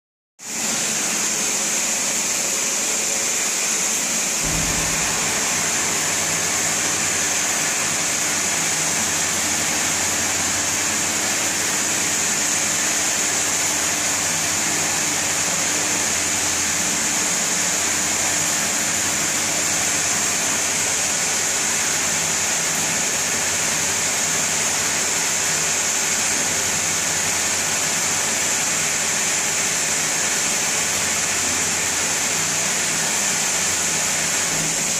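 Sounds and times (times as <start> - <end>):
loud machine hiss: 0.5 - 34.9
low hum: 4.4 - 7.1.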